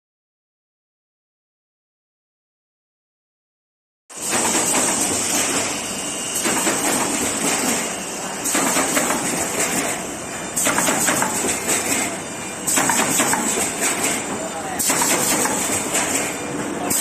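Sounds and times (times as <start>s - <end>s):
machine clattering: 4.2s - 5.7s, 6.4s - 10.0s, 10.6s - 17.0s.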